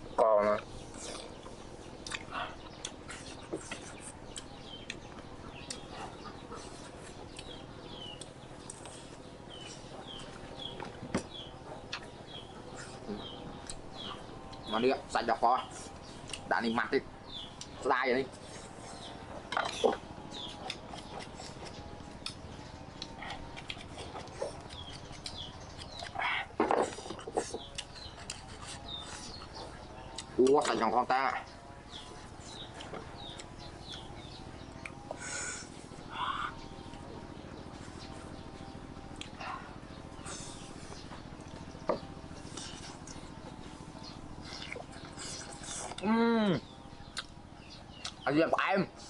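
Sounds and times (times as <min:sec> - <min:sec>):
birds chirping: 0:00.0 - 0:49.0
knife peeling mango skin: 0:23.0 - 0:29.6.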